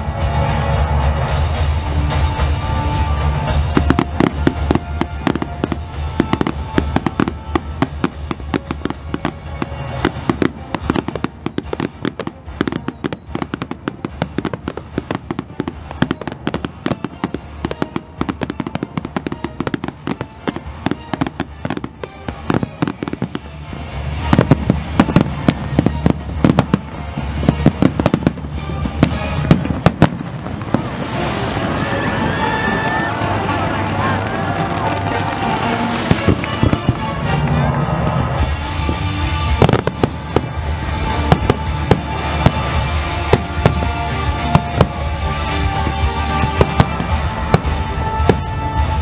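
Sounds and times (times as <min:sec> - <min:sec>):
fireworks bangs and crackles: 0:00.0 - 0:49.0.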